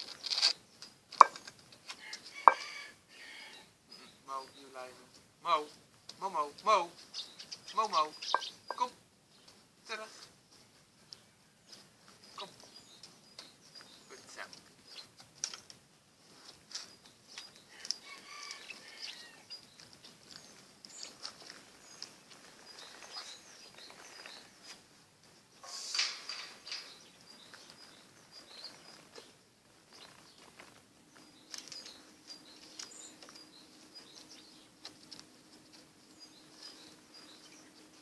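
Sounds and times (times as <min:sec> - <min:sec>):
puppies scratching on paving: 0:00.0 - 0:02.8, 0:09.6 - 0:38.0
small birds chirping: 0:00.0 - 0:38.0.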